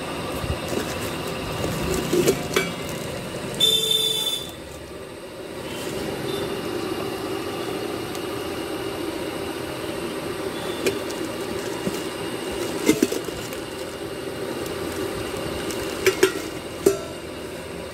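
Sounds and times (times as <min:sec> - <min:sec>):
steel pots knocking: 0:00.7 - 0:02.9, 0:10.8 - 0:13.5, 0:15.8 - 0:17.3
plastic wrapping rustling: 0:10.9 - 0:16.8.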